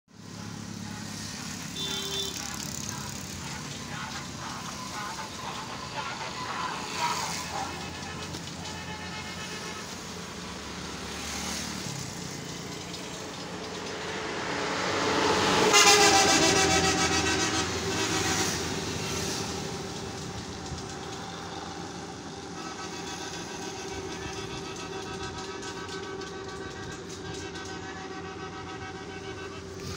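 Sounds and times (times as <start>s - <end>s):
vehicle passing close by: 0.4s - 8.6s, 10.2s - 25.2s
vehicle horn: 1.7s - 2.6s, 6.3s - 10.5s, 15.4s - 19.6s, 22.4s - 29.9s.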